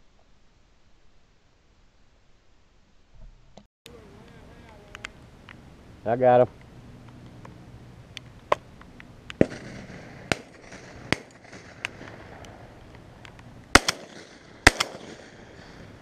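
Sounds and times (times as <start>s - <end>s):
shotgun shots: 9.4s - 12.7s, 13.7s - 16.0s.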